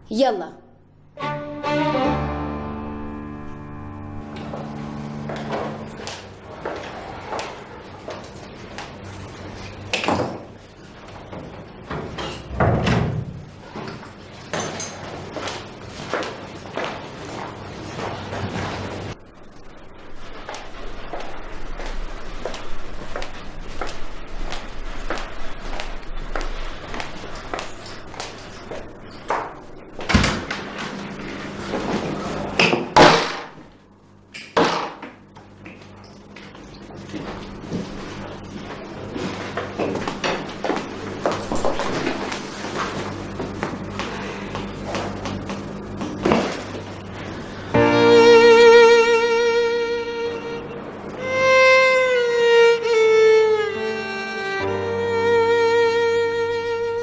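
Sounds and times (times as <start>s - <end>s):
footsteps: 3.5s - 9.8s, 20.2s - 29.6s
door opening: 4.2s - 7.0s.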